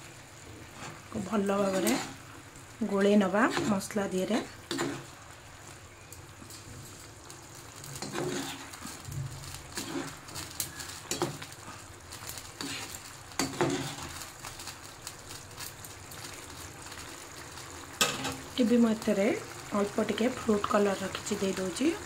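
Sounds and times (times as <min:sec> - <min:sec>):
food sizzling in a pan: 0:00.0 - 0:22.0
spoon scraping and knocking pan: 0:03.4 - 0:04.0, 0:04.7 - 0:05.1, 0:08.0 - 0:11.5, 0:12.6 - 0:14.2.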